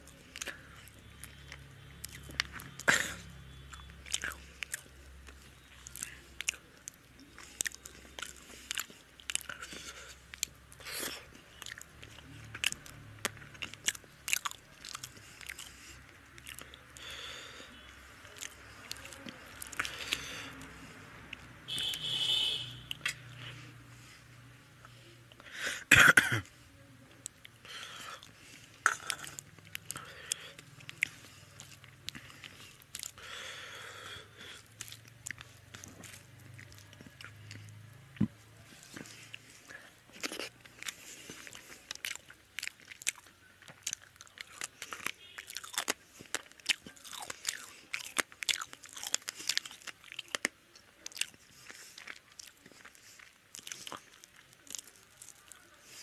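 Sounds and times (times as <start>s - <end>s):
person chewing with wet mouth sounds: 0.0s - 25.6s, 26.4s - 56.0s.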